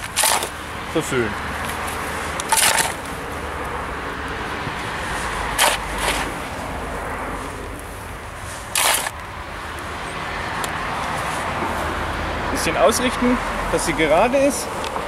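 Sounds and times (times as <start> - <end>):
spade scraping soil: 0.0 - 0.6, 2.2 - 3.1, 5.1 - 6.5, 8.4 - 9.2
outdoor background noise: 0.0 - 15.0.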